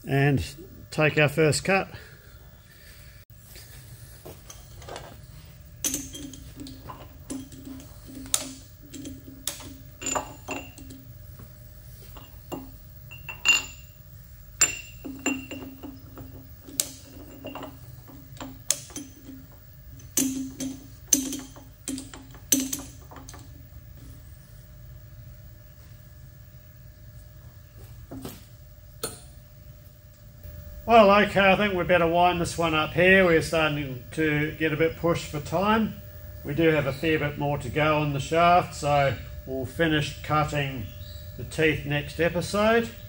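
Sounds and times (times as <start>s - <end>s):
steady low hum: 0.0s - 43.0s
metal clinks and knocks: 4.4s - 24.1s.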